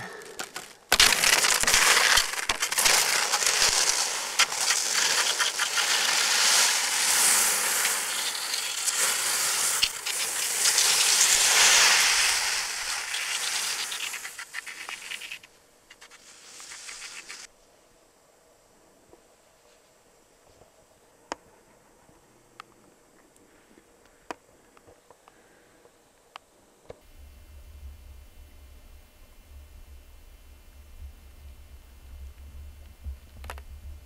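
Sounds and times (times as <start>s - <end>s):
skis scraping over crusted snow: 0.0s - 17.5s
snow crunching and clicking: 0.0s - 17.5s.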